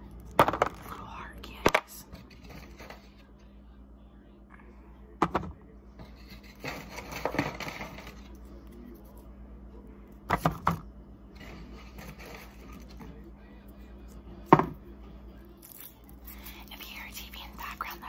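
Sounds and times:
scratchy packaging rustling: 11.4s - 13.0s.

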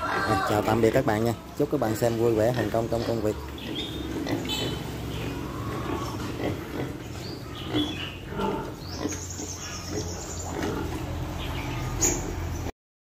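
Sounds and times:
piglets grunting: 0.0s - 12.7s
piglet squealing: 3.8s - 8.3s.

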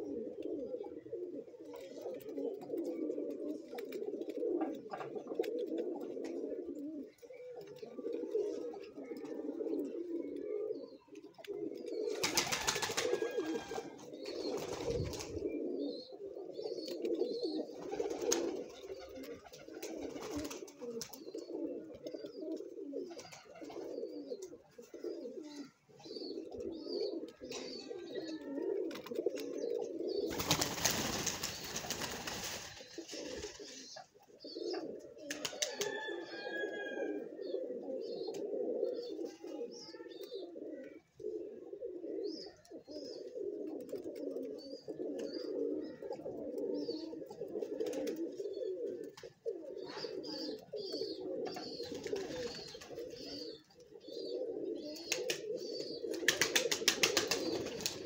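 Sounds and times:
pigeons cooing: 0.0s - 58.0s
wings flapping: 12.1s - 15.5s, 17.8s - 21.2s, 30.3s - 33.8s, 35.3s - 36.0s, 56.1s - 58.0s.

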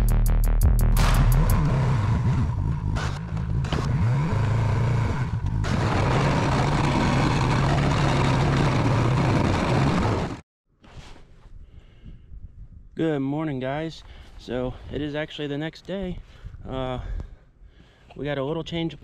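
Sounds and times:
atv engine running under load: 1.3s - 10.4s.

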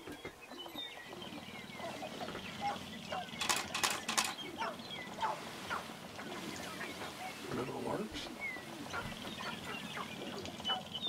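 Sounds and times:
grouse clucking calls: 0.0s - 11.0s
rattling rapid clicks: 3.4s - 4.4s.

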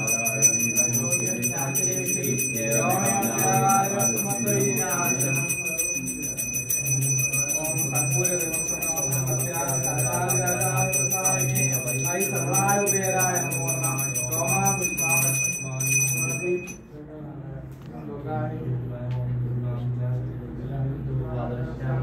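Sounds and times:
hand bell ringing rapidly: 0.0s - 16.8s
person chanting: 0.0s - 16.8s.

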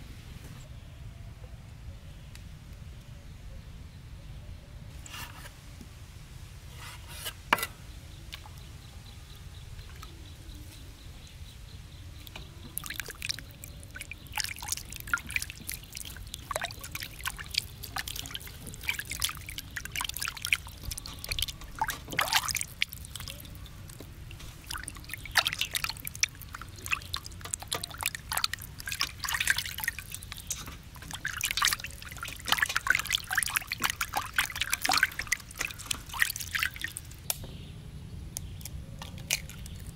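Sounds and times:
water splashing in a basin: 12.2s - 37.4s, 39.0s - 39.9s.

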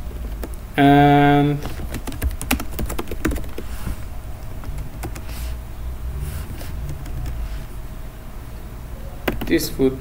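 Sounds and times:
steady low hum: 0.0s - 10.0s
computer keyboard keystrokes: 0.1s - 0.6s, 1.6s - 3.6s, 9.2s - 9.6s.

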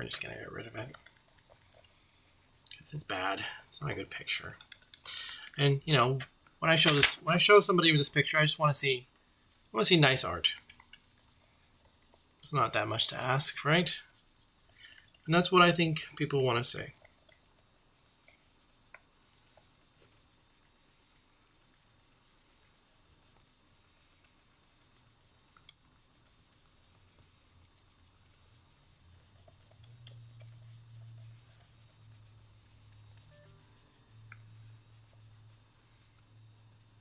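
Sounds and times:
pen scratching on paper: 0.0s - 5.1s, 13.0s - 35.5s
faint low hum: 0.0s - 37.0s.

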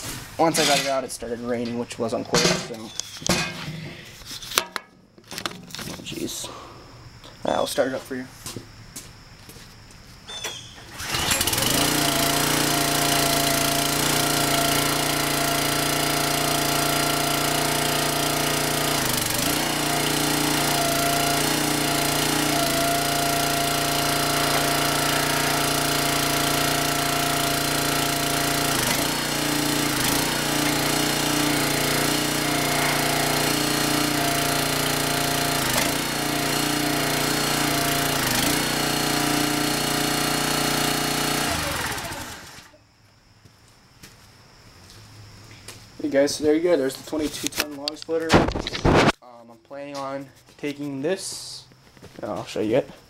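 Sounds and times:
small engine running: 10.9s - 42.8s.

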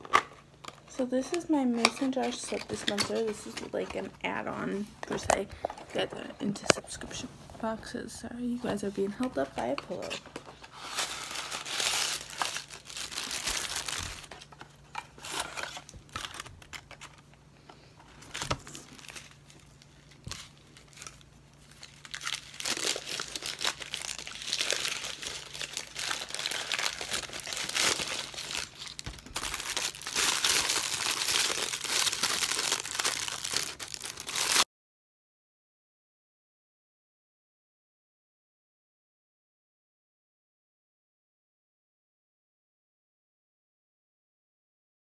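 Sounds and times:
paper wrapping crinkling: 8.6s - 34.6s.

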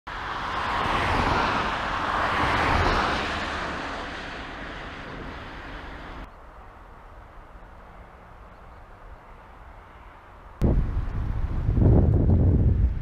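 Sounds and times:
vehicle passing by: 0.1s - 6.3s.

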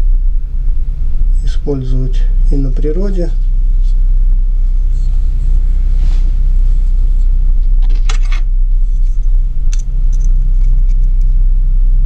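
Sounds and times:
steady low hum: 0.0s - 12.0s
rustling scrape: 3.4s - 11.1s.

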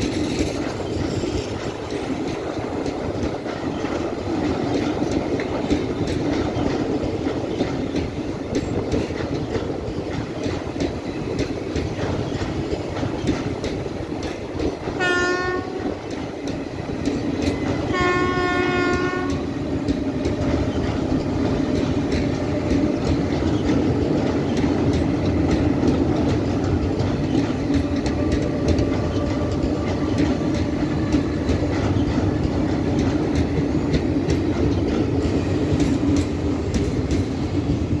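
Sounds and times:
train rumbling across steel bridge: 0.0s - 38.0s
wheels clicking over rail joints: 0.0s - 38.0s
train horn blast: 15.0s - 16.0s, 17.9s - 19.5s.

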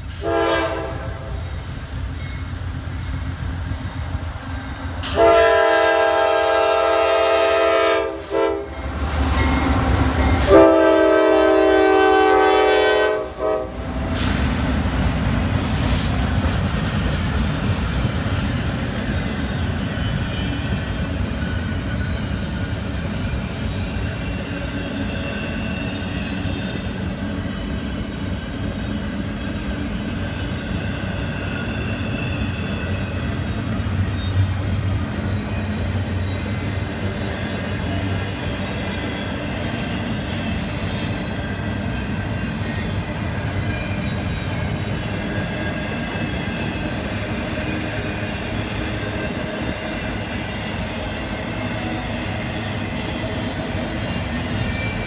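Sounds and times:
train cars rumbling on rails: 0.0s - 55.0s
locomotive air horn: 0.1s - 1.4s, 5.0s - 9.0s, 10.3s - 14.4s.

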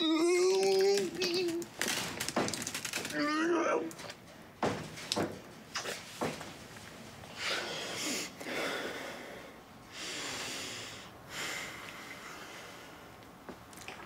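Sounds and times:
man breathing heavily: 7.3s - 13.2s.

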